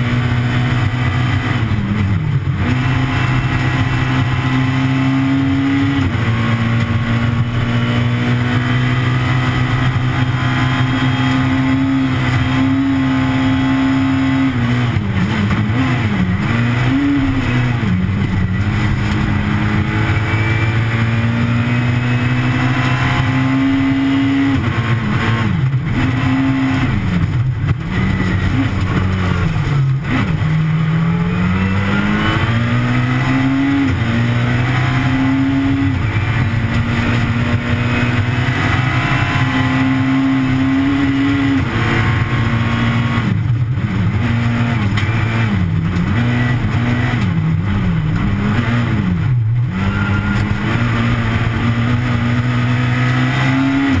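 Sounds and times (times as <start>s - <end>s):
rally car engine at high revs: 0.0s - 54.0s.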